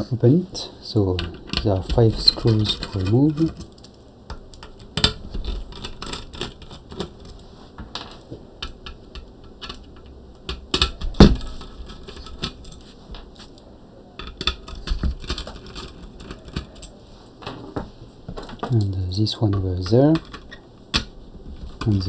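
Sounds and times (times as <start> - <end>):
screwdriver removing screws: 1.2 - 3.7.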